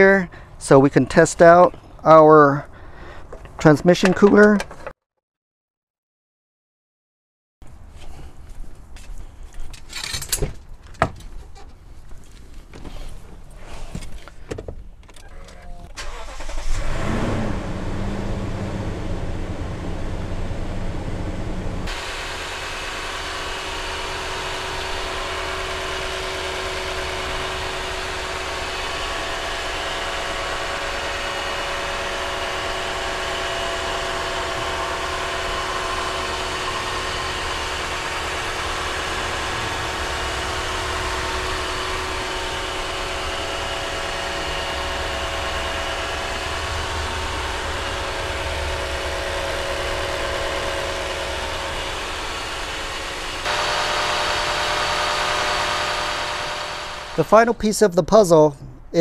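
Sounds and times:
car engine idling: 0:16.0 - 0:16.8, 0:17.7 - 0:57.4.

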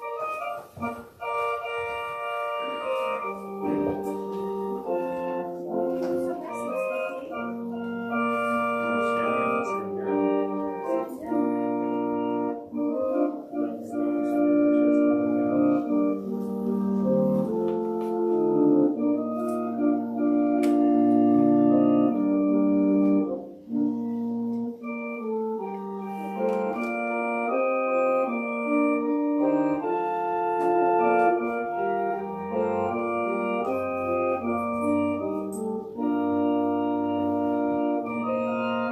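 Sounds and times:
organ chords: 0:00.0 - 0:38.9.

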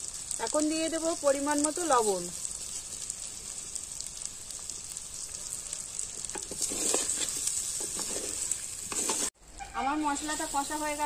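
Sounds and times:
food sizzling in a pot: 0:00.0 - 0:11.0
spatula scraping clay pot: 0:06.4 - 0:09.4.

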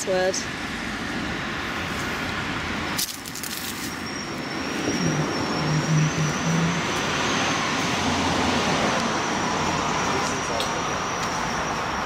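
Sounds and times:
high steady whine: 0:00.0 - 0:12.0
road traffic hum: 0:00.0 - 0:12.0.

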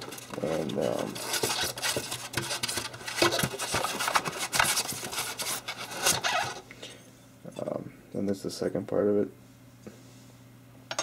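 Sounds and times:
polystyrene foam squeaking: 0:00.0 - 0:06.6.

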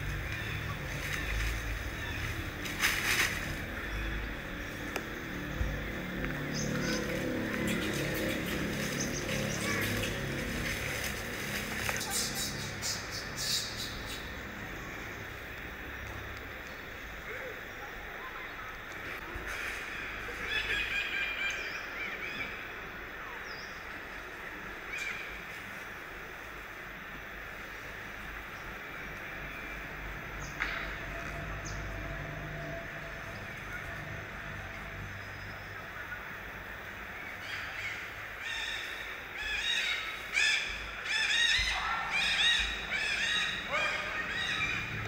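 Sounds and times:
outdoor background noise: 0:00.0 - 0:45.0
high animal calls overlapping: 0:05.4 - 0:15.0, 0:35.7 - 0:45.0.

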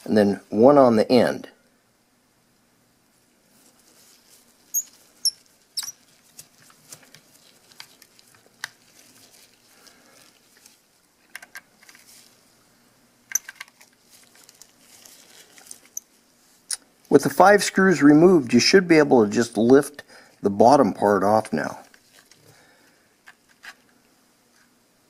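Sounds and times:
soft handling noise: 0:03.1 - 0:12.6, 0:13.3 - 0:17.2, 0:21.4 - 0:24.8.

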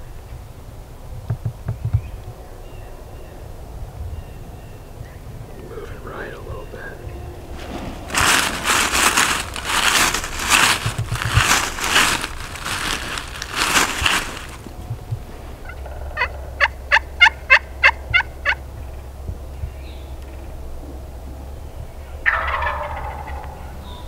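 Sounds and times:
turkeys gobbling: 0:05.5 - 0:18.7, 0:22.2 - 0:23.8
sharp turkey yelps: 0:15.6 - 0:18.6, 0:22.2 - 0:23.6.

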